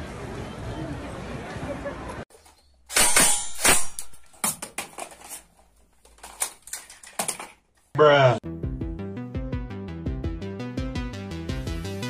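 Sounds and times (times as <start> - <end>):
hard objects clattering and knocking: 3.9 - 7.7.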